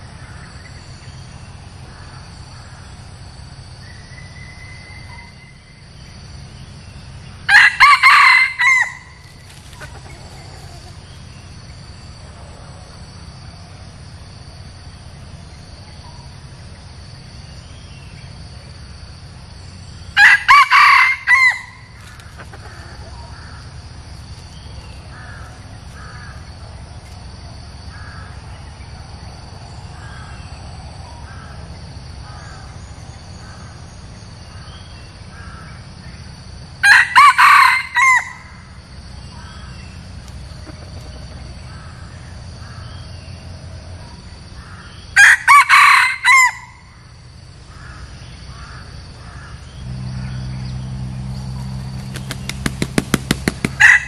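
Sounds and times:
rooster crowing: 0:07.5 - 0:11.1, 0:20.2 - 0:23.6, 0:36.8 - 0:38.7, 0:45.2 - 0:47.0, 0:53.5 - 0:54.0.

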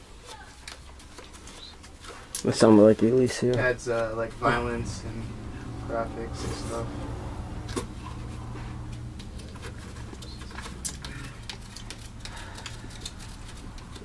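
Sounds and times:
low hum: 0:03.8 - 0:14.0.

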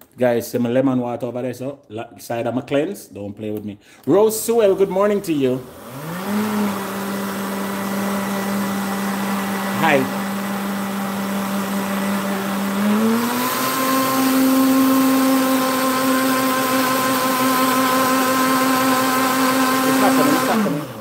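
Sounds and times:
blender motor winding down: 0:04.3 - 0:21.0
blender motor running: 0:04.4 - 0:21.0.

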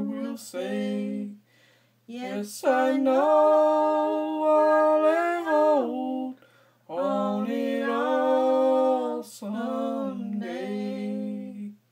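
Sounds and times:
woman singing gospel melody: 0:00.0 - 0:01.4, 0:02.1 - 0:11.8
quick breath: 0:01.4 - 0:02.0, 0:06.4 - 0:06.9.

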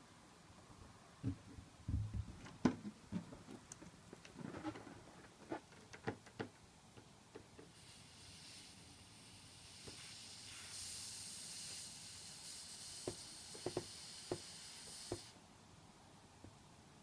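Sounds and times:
balloon air hissing out: 0:07.7 - 0:15.4.

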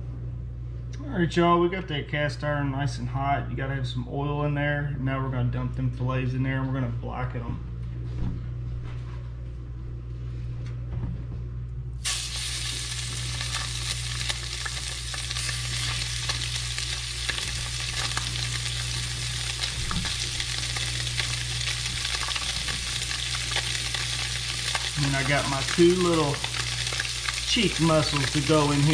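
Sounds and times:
low steady hum: 0:00.0 - 0:28.9
fish sizzling in hot oil: 0:12.0 - 0:28.9
oil popping: 0:12.0 - 0:28.9.

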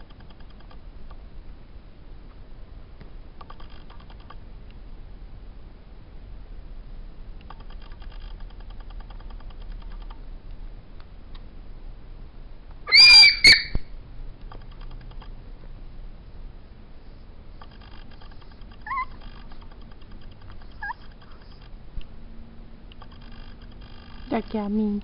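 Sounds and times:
puppy yelping: 0:12.9 - 0:13.8, 0:18.8 - 0:19.4, 0:20.7 - 0:21.4
puppy whimpering: 0:18.8 - 0:19.3, 0:20.7 - 0:21.2.

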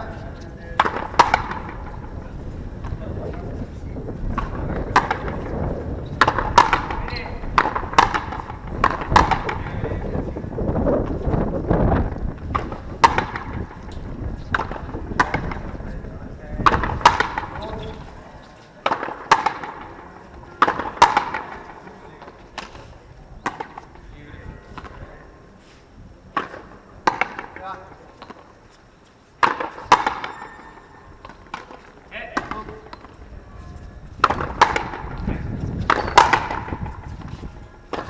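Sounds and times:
rubber ball hitting rackets and wall: 0:00.6 - 0:02.2, 0:04.2 - 0:10.1, 0:11.0 - 0:15.9, 0:16.6 - 0:18.1, 0:18.8 - 0:25.2, 0:26.3 - 0:28.5, 0:29.4 - 0:33.2, 0:34.1 - 0:38.0.

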